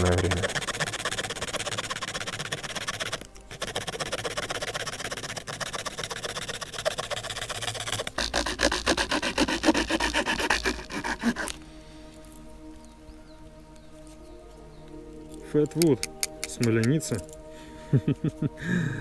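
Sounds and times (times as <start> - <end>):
saw blade rasping through branch: 0.0 - 11.7.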